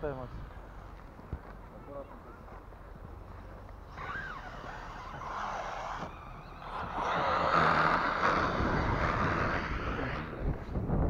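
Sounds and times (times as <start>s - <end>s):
tyres churning snow: 3.8s - 10.8s
toy car motor whirring: 3.9s - 10.4s.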